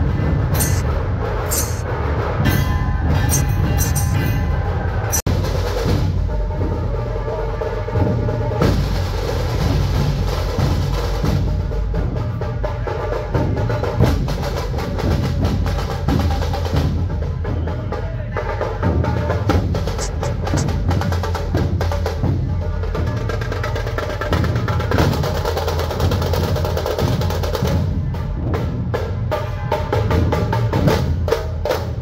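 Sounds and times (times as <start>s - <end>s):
barrel drums beaten with sticks: 0.6s - 0.8s, 2.4s - 6.7s.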